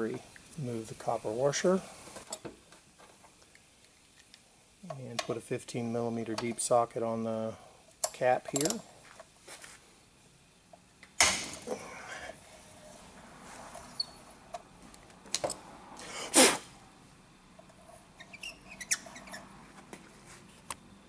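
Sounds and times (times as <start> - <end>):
metal tool clunks and clinks: 8.0 - 8.9.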